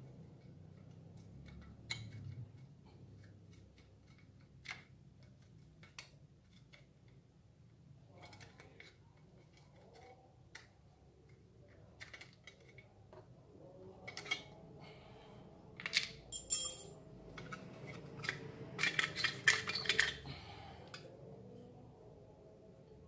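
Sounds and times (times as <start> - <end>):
metal cover clinking and rattling: 16.4 - 16.9.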